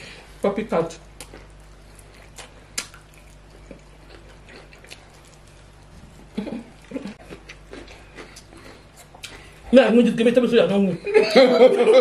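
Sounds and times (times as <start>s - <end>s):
chewing mouth sounds: 1.2s - 9.6s.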